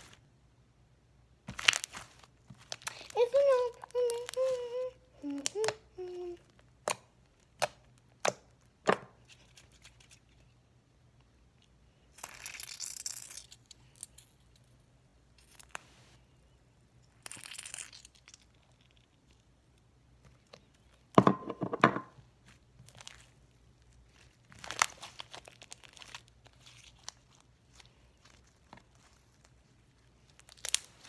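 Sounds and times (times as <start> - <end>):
slime squishing: 1.5 - 4.6, 22.3 - 31.0.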